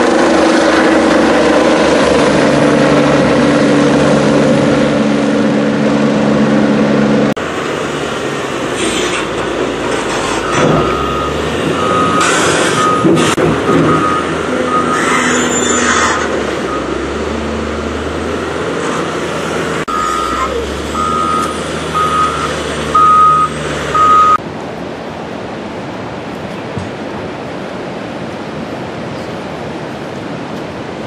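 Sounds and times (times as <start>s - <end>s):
reversing alarm beeping: 10.4s - 15.8s, 16.6s - 17.2s, 19.9s - 24.4s.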